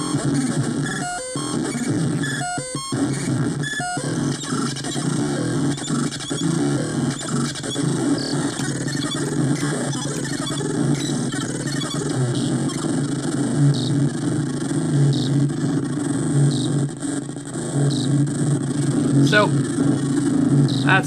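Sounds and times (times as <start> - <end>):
low buzzing electronic noise: 0.0 - 21.0
electronic clicks: 0.9 - 12.9.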